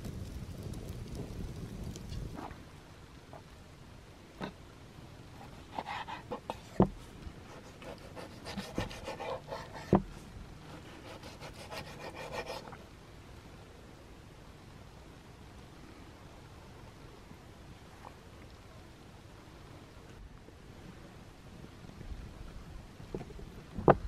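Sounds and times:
knife scraping on cutting board: 7.5 - 10.0.

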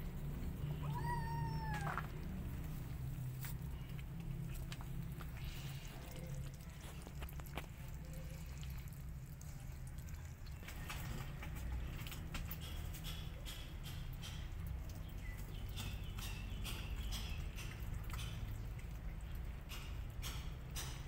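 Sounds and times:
low steady rumble: 0.0 - 12.2
cats crunching kibble: 0.3 - 9.4.

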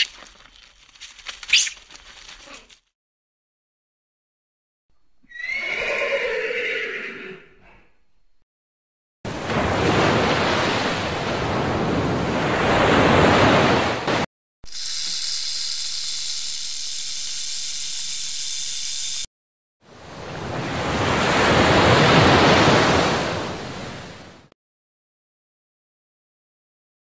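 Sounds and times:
surf washing onto beach: 9.3 - 14.2, 20.0 - 24.4
rattlesnake rattle buzzing: 14.7 - 19.3.

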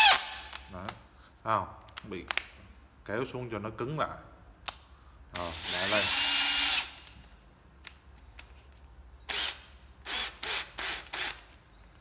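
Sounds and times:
cordless drill motor bursts: 5.4 - 7.0, 9.3 - 11.4.

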